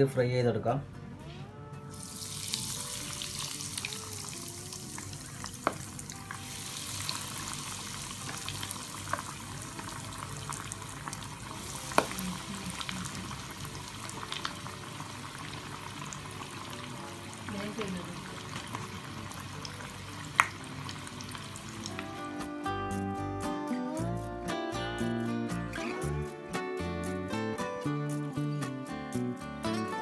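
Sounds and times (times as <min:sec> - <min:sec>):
chicken sizzling in hot oil: 0:01.9 - 0:22.2.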